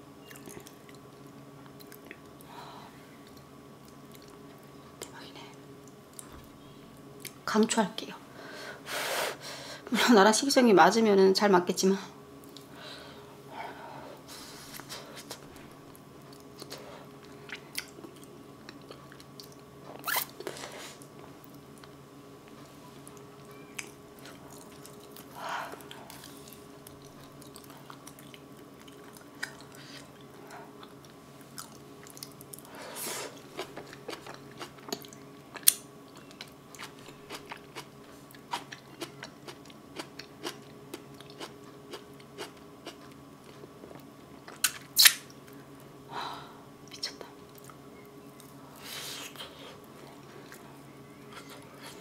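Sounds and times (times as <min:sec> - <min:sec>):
soft chewing: 0:00.2 - 0:02.5, 0:03.1 - 0:06.3, 0:12.4 - 0:12.8, 0:14.4 - 0:19.7, 0:20.3 - 0:45.9, 0:46.8 - 0:52.0
wet lip smacks: 0:44.5 - 0:45.3.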